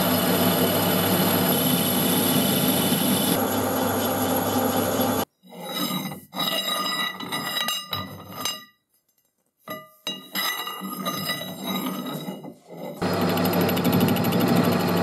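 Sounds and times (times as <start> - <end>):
metal tube clinking and scraping: 5.4 - 13.0.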